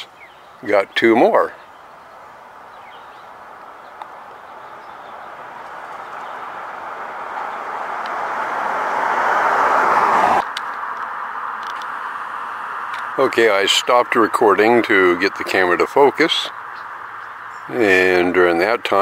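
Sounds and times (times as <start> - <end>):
road vehicle approaching: 0.0 - 19.0.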